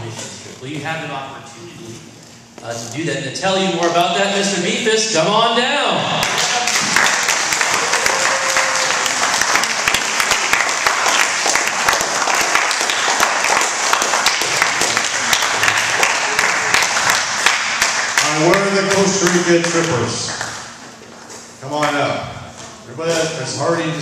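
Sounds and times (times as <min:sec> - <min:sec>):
children applauding: 0:06.2 - 0:20.6.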